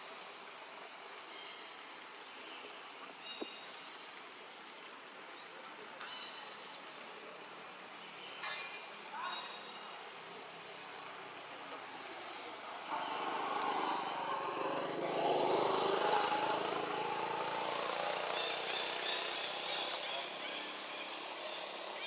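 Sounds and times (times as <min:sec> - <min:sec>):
vehicle engine passing: 0:11.9 - 0:22.0.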